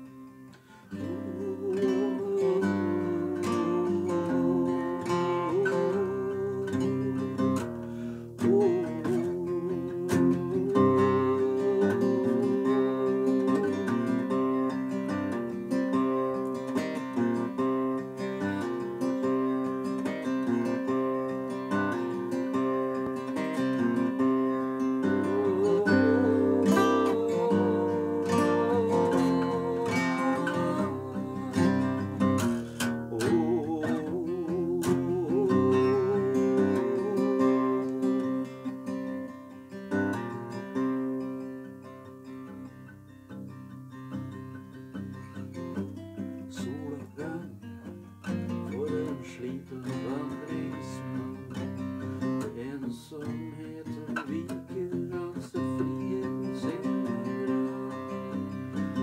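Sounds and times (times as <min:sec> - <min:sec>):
acoustic guitar strumming chords: 0:00.0 - 0:59.0.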